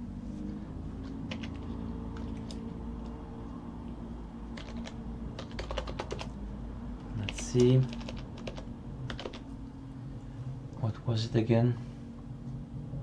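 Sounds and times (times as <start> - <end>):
steady low hum: 0.0 - 13.0
computer keyboard typing: 1.0 - 3.2, 4.5 - 6.4, 7.1 - 9.5.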